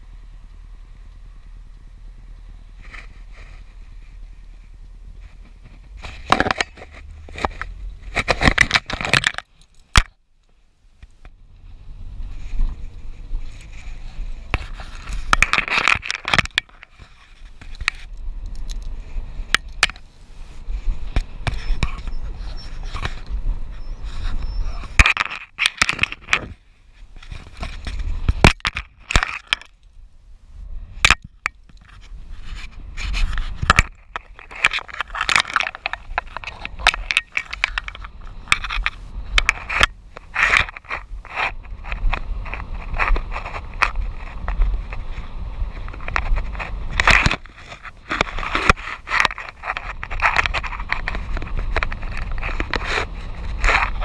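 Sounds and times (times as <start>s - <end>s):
van road rumble: 0.0s - 54.0s
scraping and rustling on microphone: 2.5s - 10.2s, 11.0s - 54.0s.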